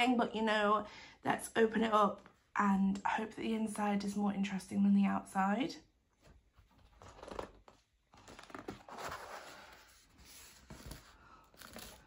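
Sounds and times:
cardboard scrapes and rustles: 6.6 - 12.0.

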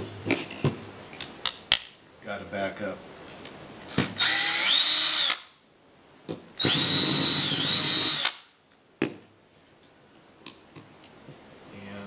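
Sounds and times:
cordless drill whining: 3.9 - 5.5, 6.6 - 8.5.

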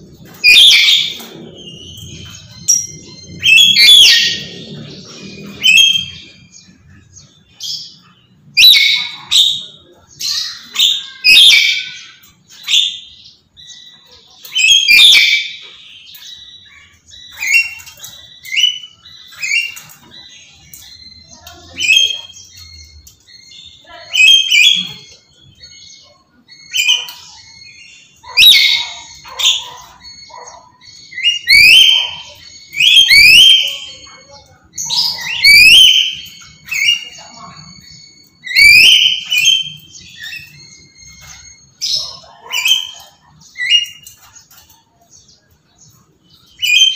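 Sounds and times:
parrot screeching: 0.4 - 6.4, 28.2 - 37.8, 38.4 - 40.6.

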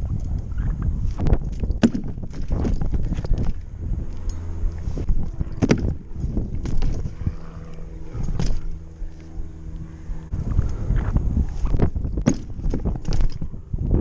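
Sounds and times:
wind buffeting the microphone: 0.0 - 8.9, 9.9 - 14.0
bike knocks: 11.8 - 13.5.

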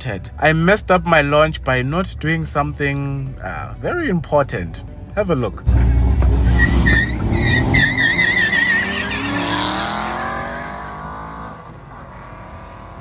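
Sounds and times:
car engines revving: 5.6 - 13.0
tyres squealing: 6.3 - 10.9.

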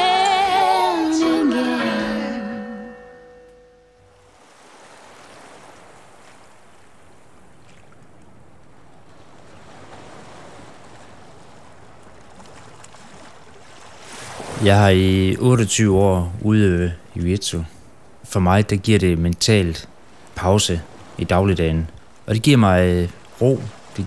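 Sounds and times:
music: 0.0 - 3.8
waves washing onto rocks: 9.0 - 15.0.

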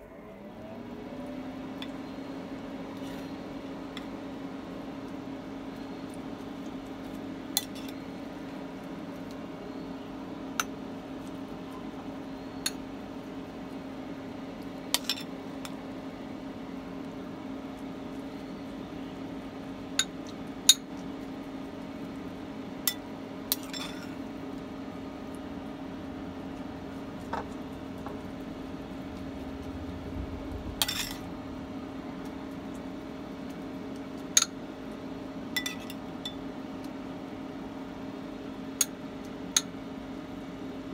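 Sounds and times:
low cooktop hum: 0.0 - 40.9
metal spoon clinking on ceramic bowls: 35.6 - 36.4.

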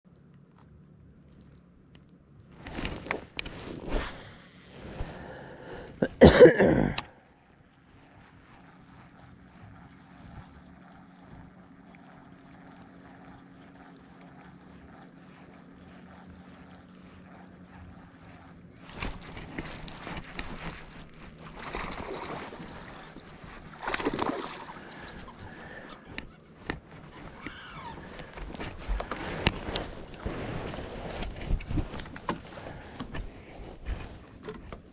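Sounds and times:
fishing rod handling: 6.9 - 34.8
water splashing: 18.9 - 25.8.

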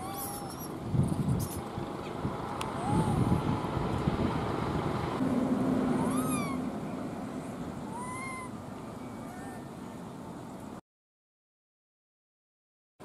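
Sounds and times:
monkey coo calls: 0.0 - 0.8, 6.0 - 6.7, 7.9 - 9.7
low background rumble: 0.0 - 10.8.

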